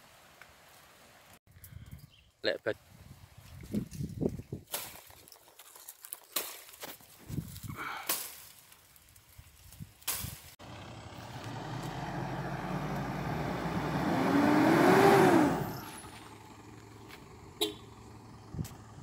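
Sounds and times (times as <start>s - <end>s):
suv engine driving: 10.6s - 19.0s.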